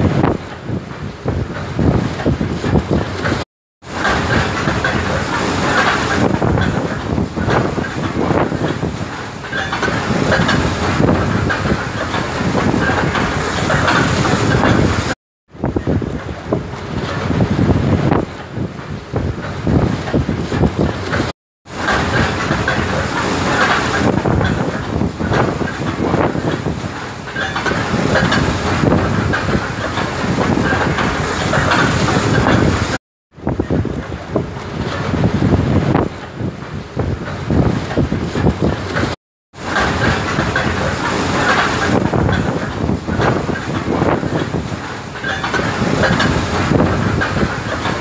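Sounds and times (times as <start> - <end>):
wind on microphone: 0.0 - 48.0
sea water splashing: 1.6 - 17.7, 19.4 - 36.0, 37.0 - 48.0.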